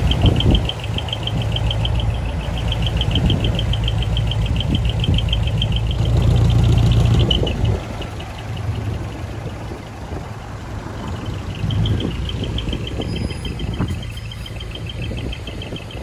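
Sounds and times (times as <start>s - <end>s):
diesel truck engines rumbling: 0.0s - 16.0s.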